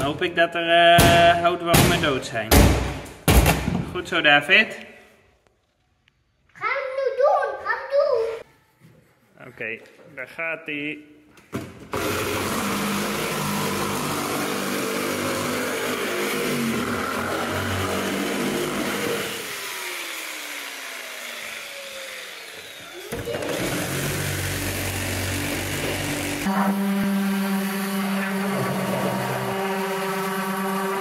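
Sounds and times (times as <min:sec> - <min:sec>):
electric sander running on wood: 0:12.0 - 0:31.0.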